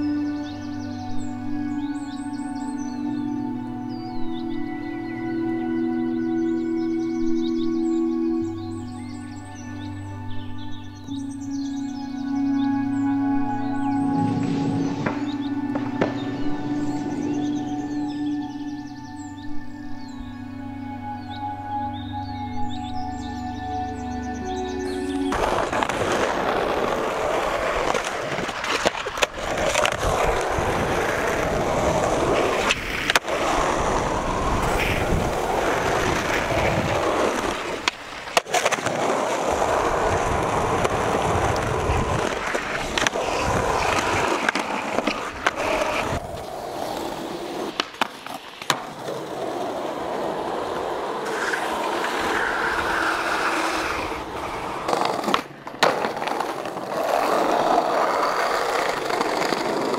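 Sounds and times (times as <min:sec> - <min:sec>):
skateboard wheels rolling: 0:12.9 - 0:18.2, 0:25.0 - 0:59.9
skateboard tail pops and landings: 0:14.7 - 0:16.4.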